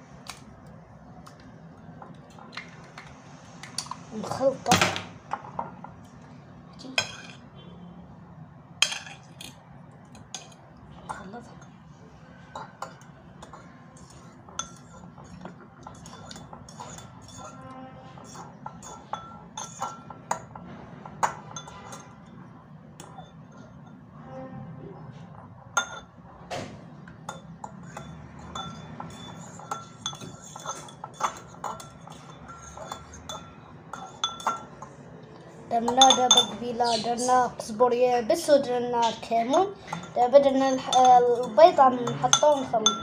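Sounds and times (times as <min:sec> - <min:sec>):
utensil clinking against glass bowl: 0:12.4 - 0:24.0, 0:25.4 - 0:26.2, 0:27.1 - 0:35.0, 0:35.7 - 0:37.1, 0:39.0 - 0:43.0.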